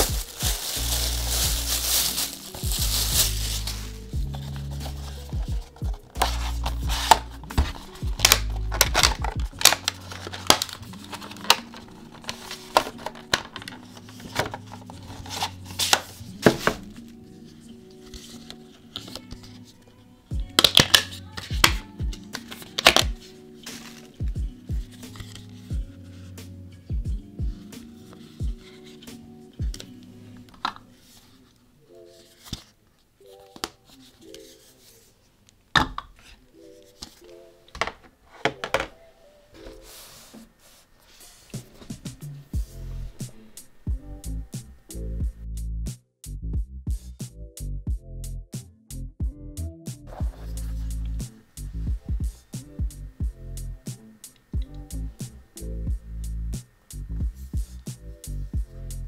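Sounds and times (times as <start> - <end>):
soft background music: 0.0 - 59.0
stylus rubbing strokes: 39.6 - 43.5.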